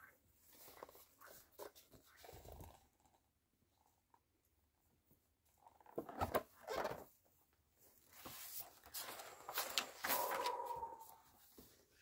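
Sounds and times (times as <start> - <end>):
book pages turning: 8.2 - 11.1.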